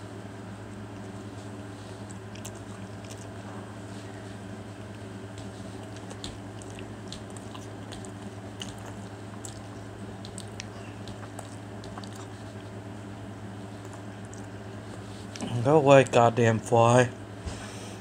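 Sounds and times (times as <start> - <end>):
steady low hum: 0.0 - 18.0
person chewing: 1.9 - 3.5, 4.8 - 12.8, 13.6 - 15.5
wet mouth clicks: 2.1 - 3.4, 5.8 - 12.4.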